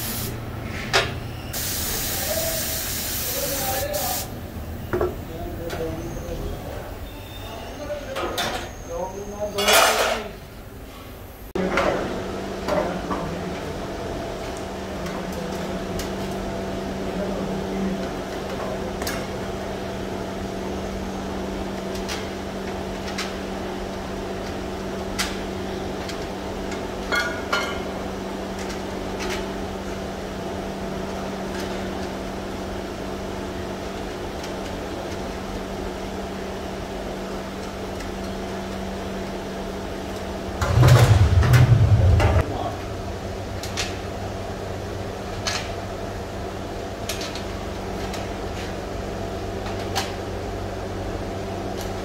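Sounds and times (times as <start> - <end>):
steady mechanical hum: 0.0 - 52.0
short loud burst of noise: 40.6 - 43.4.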